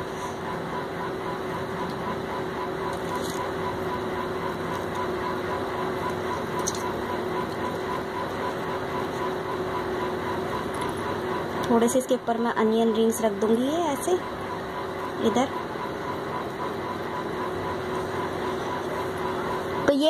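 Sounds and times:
machine hum and hiss: 0:00.0 - 0:20.0
pulsing high tone: 0:00.0 - 0:20.0.

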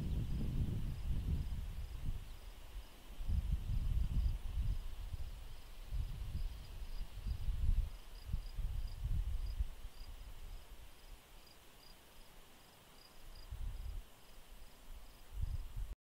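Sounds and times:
low rumble in gusts: 0:00.0 - 0:10.6
insect chirping: 0:00.0 - 0:15.6.

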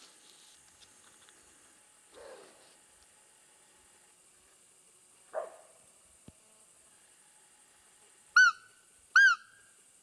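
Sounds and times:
deer call squeaks: 0:08.4 - 0:09.6.

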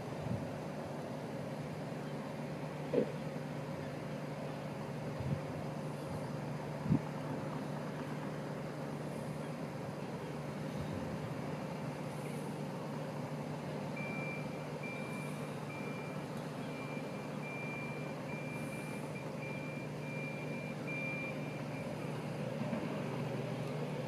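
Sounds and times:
engine humming: 0:00.0 - 0:24.0.

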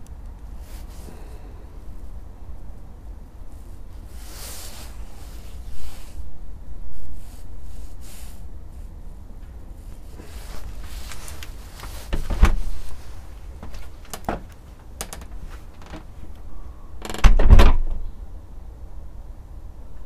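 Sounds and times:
steady low rumble: 0:00.0 - 0:16.5
heavy handling bumps with rubbing: 0:10.1 - 0:16.1.

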